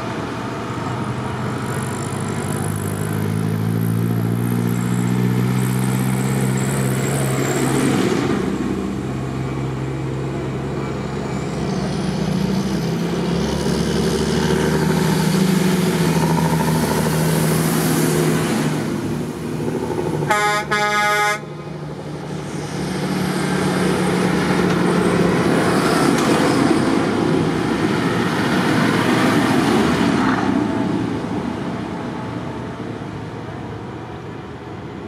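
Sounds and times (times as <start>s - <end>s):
tractors driving past: 0.0s - 35.0s
horn short toots: 20.3s - 21.5s.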